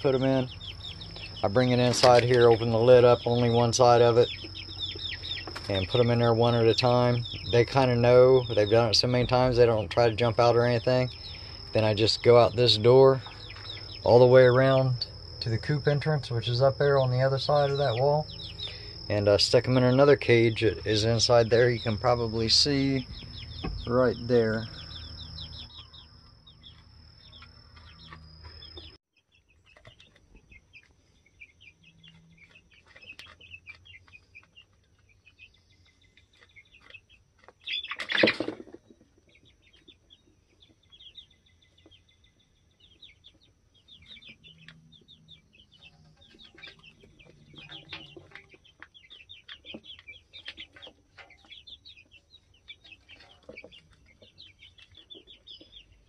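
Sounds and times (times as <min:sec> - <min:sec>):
chicken clucking: 0:00.0 - 0:12.4, 0:29.6 - 0:56.0
chicks peeping: 0:00.0 - 0:56.0.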